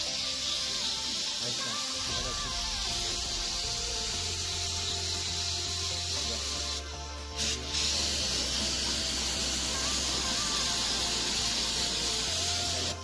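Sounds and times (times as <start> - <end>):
spray hiss: 0.0 - 13.0.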